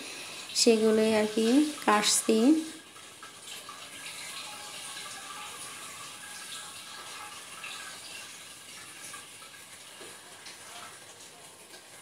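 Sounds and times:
running water: 0.0 - 12.0.

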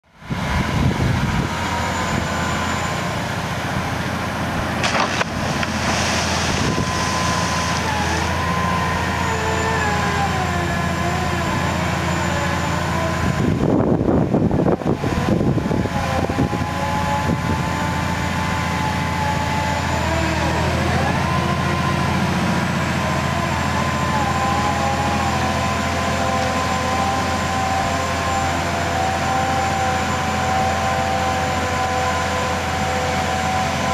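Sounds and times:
diesel engine drone: 0.0 - 33.9
wavering whine: 4.8 - 13.6.

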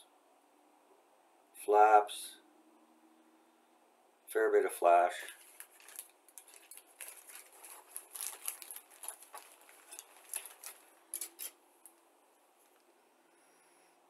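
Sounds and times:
plastic bag crinkling: 5.2 - 12.0.

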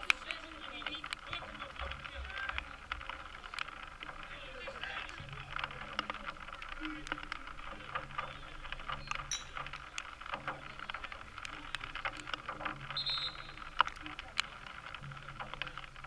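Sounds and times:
faint voices: 0.0 - 16.0
sharp clicks and knocks: 0.0 - 16.0
high whistle chirp: 13.0 - 13.6.

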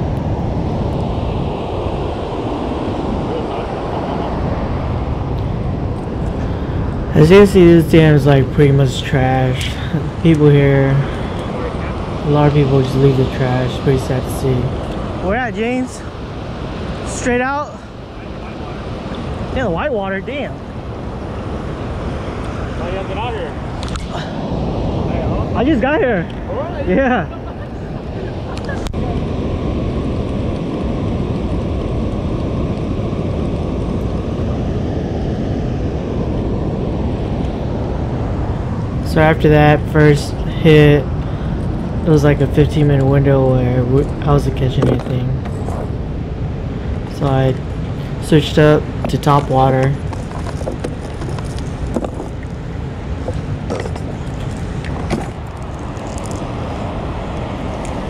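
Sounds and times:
water roaring through spillway: 0.0 - 58.0
water rushing through dam: 46.8 - 58.0.

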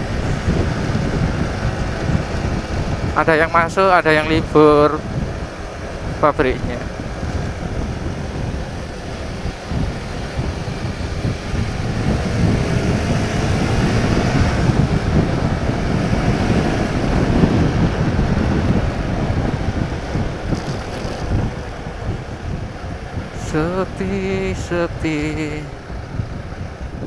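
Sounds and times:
wind rumble on microphone: 0.0 - 27.0
motorcycle engine pulling: 20.4 - 21.8.

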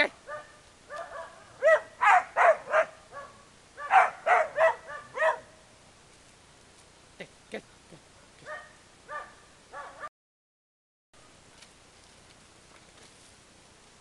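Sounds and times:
dog barking angrily: 0.3 - 5.6, 8.4 - 10.1.

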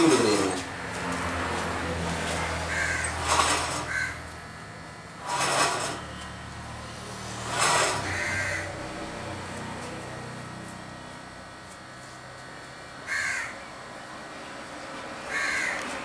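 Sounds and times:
crow cawing: 2.6 - 3.2, 3.8 - 4.2, 8.0 - 8.8, 13.1 - 13.6, 15.3 - 15.9.

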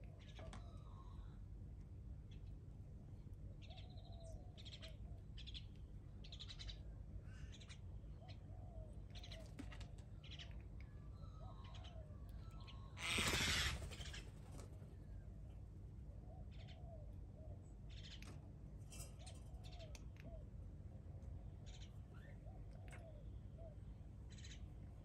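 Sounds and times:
birds chirping: 11.2 - 14.6.

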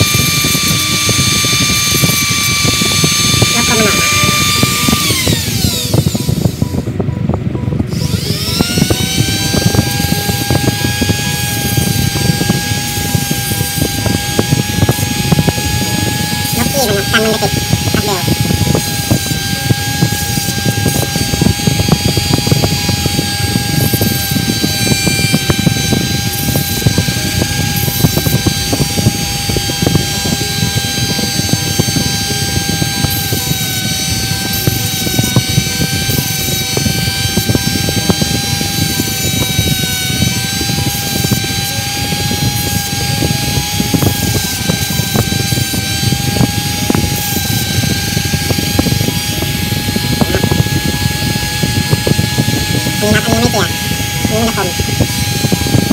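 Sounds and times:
motor whirring: 0.0 - 55.9.

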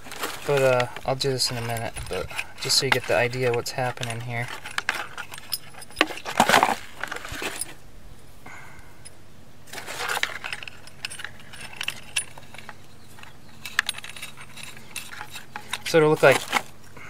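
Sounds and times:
rustle and clink of fittings: 0.0 - 7.8, 9.0 - 17.0
small metallic clicks: 10.1 - 16.7.

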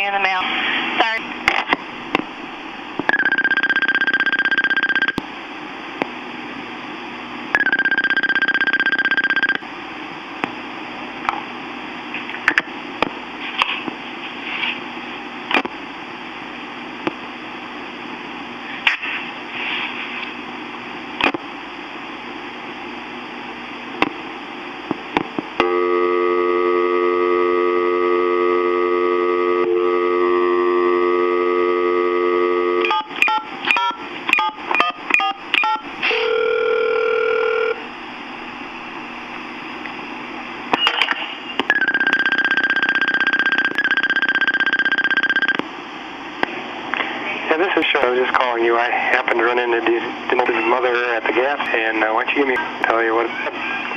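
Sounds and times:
telephone dial tone: 3.1 - 5.2, 7.6 - 9.6, 35.6 - 37.8, 41.7 - 45.6
touch-tone dialing beeps: 3.1 - 5.2, 7.6 - 9.6, 32.8 - 37.8, 41.7 - 45.6
tape hiss: 5.0 - 41.7.

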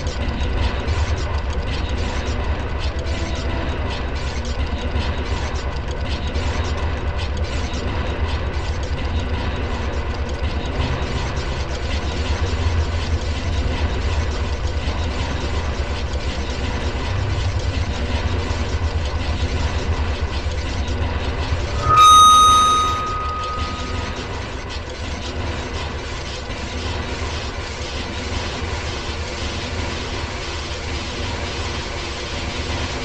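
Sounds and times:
loud high steady tone: 21.6 - 24.6.

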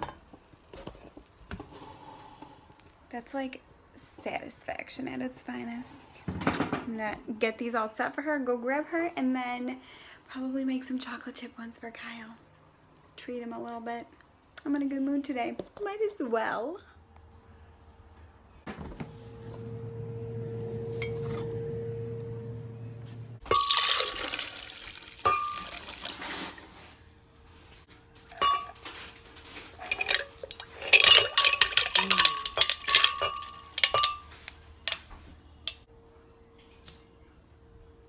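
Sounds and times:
low steady hum: 18.3 - 38.0
liquid pouring into blender jar: 23.6 - 26.2.

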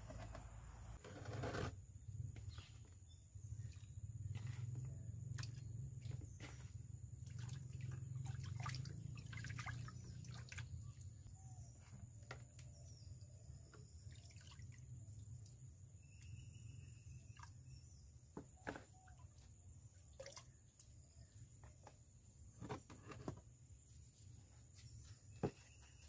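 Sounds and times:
water sloshing and splashing in a pot: 3.4 - 11.3, 13.6 - 15.9, 17.1 - 21.1.

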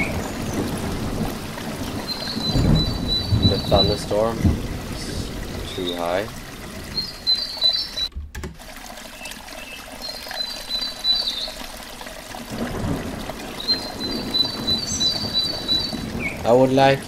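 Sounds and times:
low rumble of thunder: 0.0 - 7.3, 12.5 - 17.0
stream trickling: 0.0 - 17.0
bird singing trills: 2.1 - 4.0, 7.0 - 8.1, 9.6 - 11.6, 13.6 - 16.4.

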